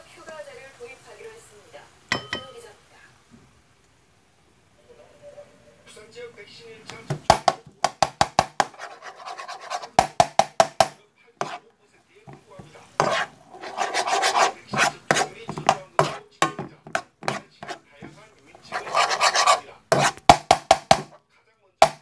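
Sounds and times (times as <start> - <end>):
spatula scraping frying pan: 7.1 - 11.6, 12.3 - 21.2.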